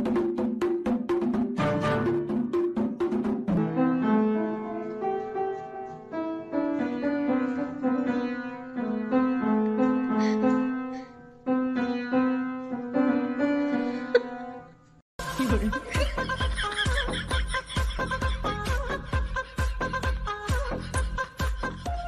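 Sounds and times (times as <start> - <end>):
piano melody: 0.0 - 14.8.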